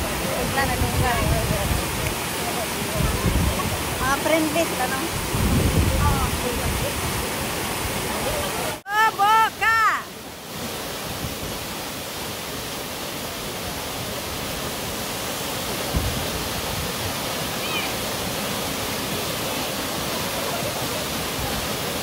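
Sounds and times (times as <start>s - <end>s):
waterfall rushing: 0.0s - 22.0s
low thump: 15.9s - 16.2s.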